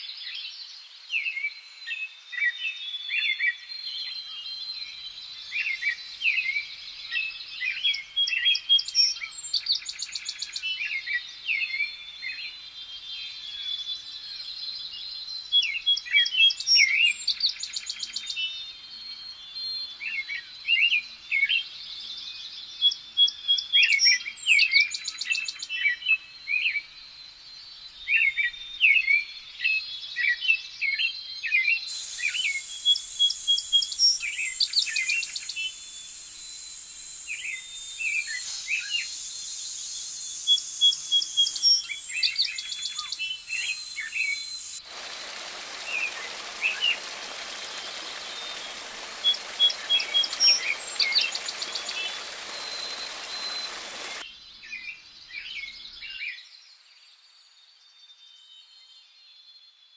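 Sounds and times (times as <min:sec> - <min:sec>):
birds chirping: 0:31.9 - 0:54.2
rapid high bird trills: 0:31.9 - 0:54.2.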